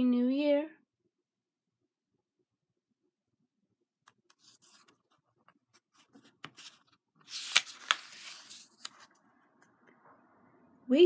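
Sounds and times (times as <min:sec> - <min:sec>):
book pages rustling and turning: 0:04.1 - 0:09.8
page swish: 0:05.9 - 0:09.1
page snaps: 0:06.4 - 0:09.0.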